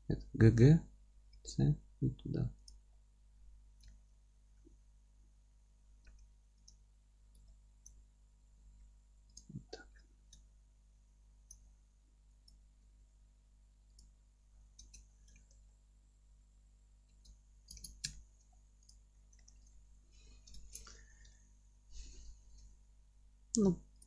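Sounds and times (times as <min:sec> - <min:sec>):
mouse and keyboard clicks: 0:17.1 - 0:18.2.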